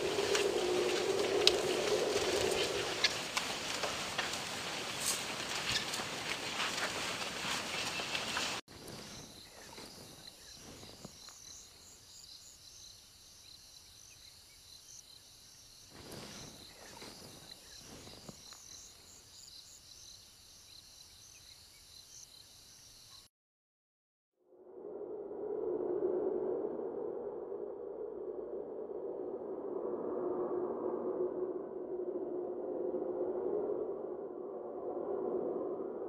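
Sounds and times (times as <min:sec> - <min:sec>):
insects chirping: 0:00.0 - 0:05.1, 0:08.7 - 0:23.3
soft low rustles: 0:00.0 - 0:08.6.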